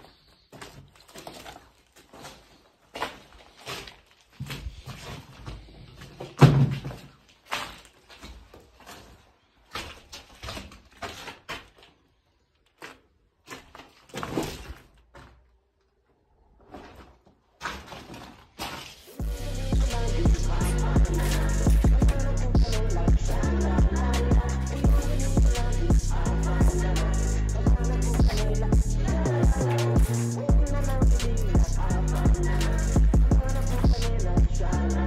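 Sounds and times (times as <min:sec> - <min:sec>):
footsteps on plaster rubble: 0:00.0 - 0:15.8, 0:16.4 - 0:19.3.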